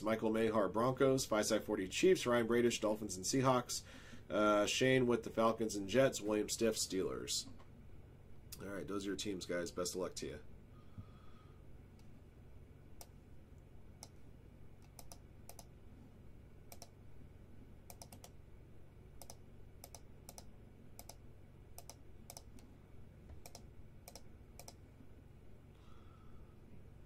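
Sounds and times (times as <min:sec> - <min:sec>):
low steady hum: 0:00.0 - 0:27.0
computer keys clicking: 0:14.8 - 0:15.7, 0:16.7 - 0:17.0, 0:17.9 - 0:18.4, 0:19.2 - 0:21.2, 0:21.8 - 0:22.7, 0:23.4 - 0:24.8.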